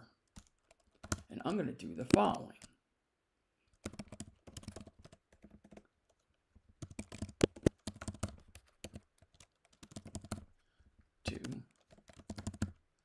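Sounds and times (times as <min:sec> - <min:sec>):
typing on computer keyboard: 0:00.3 - 0:01.3, 0:03.7 - 0:06.2, 0:06.8 - 0:10.6, 0:11.3 - 0:12.8.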